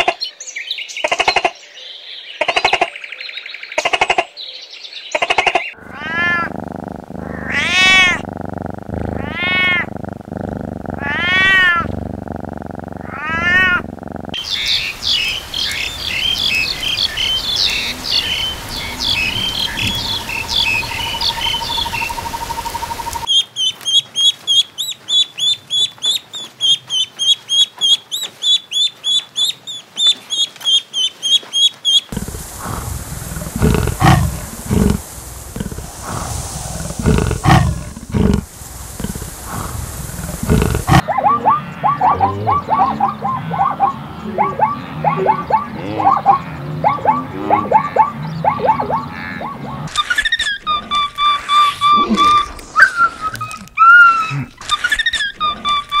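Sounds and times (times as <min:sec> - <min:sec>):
small birds chirping: 0:00.0 - 0:56.0
cat meowing: 0:05.8 - 0:06.5, 0:07.4 - 0:08.2, 0:09.2 - 0:09.9, 0:11.0 - 0:11.9, 0:13.0 - 0:13.8
cheetah growling: 0:05.8 - 0:14.9, 0:32.1 - 0:52.9.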